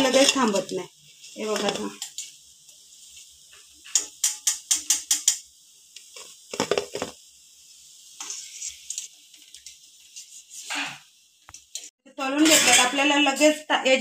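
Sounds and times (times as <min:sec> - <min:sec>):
fried pieces clattering onto steel plate: 0:00.0 - 0:00.8, 0:01.4 - 0:02.3, 0:03.5 - 0:05.4, 0:06.1 - 0:07.2, 0:12.4 - 0:13.0.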